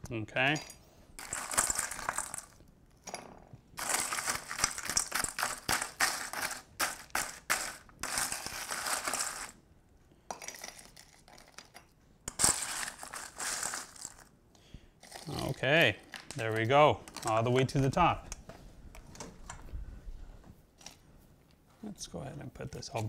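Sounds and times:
ice cubes clinking in a bowl: 0:01.2 - 0:02.6, 0:03.8 - 0:09.6, 0:10.4 - 0:14.3.

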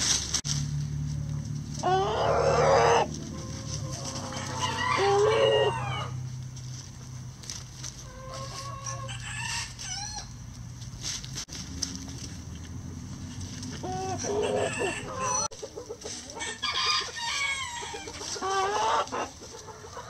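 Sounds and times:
hens clucking: 0:01.3 - 0:10.9, 0:12.5 - 0:20.0
rooster crowing: 0:01.8 - 0:06.2, 0:08.1 - 0:10.4, 0:13.8 - 0:15.5, 0:16.4 - 0:19.1.

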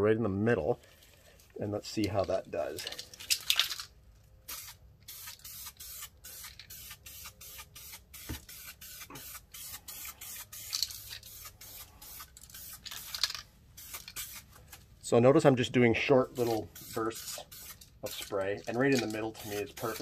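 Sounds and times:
aerosol can spraying: 0:04.5 - 0:14.6, 0:16.3 - 0:20.0.

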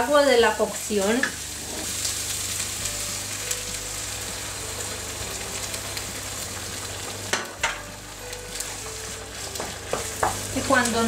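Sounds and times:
food sizzling in frying pan: 0:00.0 - 0:11.0
wooden spatula stirring: 0:08.5 - 0:11.0.

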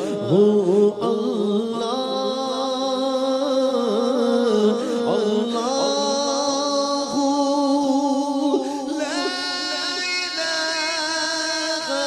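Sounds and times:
man singing: 0:00.0 - 0:12.0.

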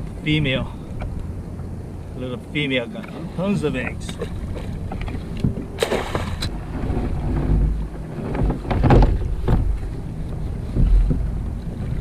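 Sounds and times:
water lapping around kayak: 0:00.0 - 0:12.0
wind buffeting microphone: 0:00.0 - 0:12.0
crab net rustling and clattering: 0:04.2 - 0:09.9.

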